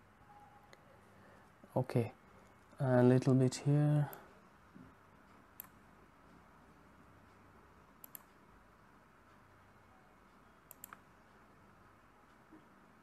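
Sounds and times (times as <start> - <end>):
computer mouse clicking: 5.6 - 5.8, 8.0 - 8.4, 10.7 - 11.1.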